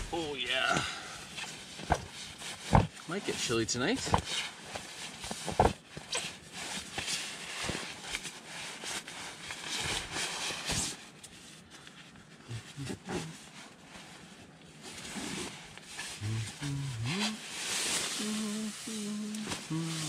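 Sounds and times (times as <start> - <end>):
nylon fabric rustling: 1.2 - 3.2, 4.1 - 12.1, 17.4 - 20.0.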